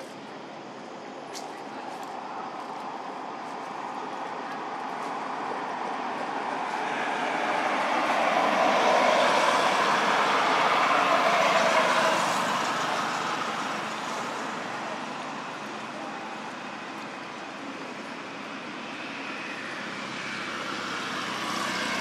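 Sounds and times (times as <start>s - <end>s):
vehicle passing by: 6.0s - 14.3s, 19.8s - 22.0s.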